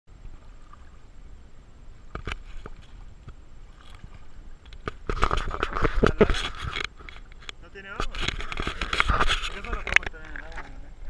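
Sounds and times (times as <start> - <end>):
camera housing handling rumble: 2.1 - 10.7.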